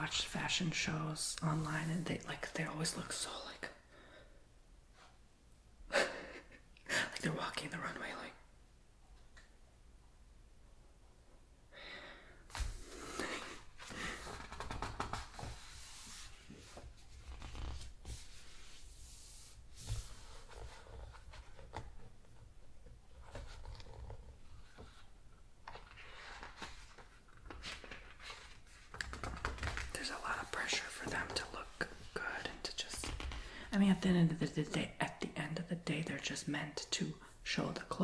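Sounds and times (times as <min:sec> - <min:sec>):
book pages rustling: 0:13.8 - 0:32.1.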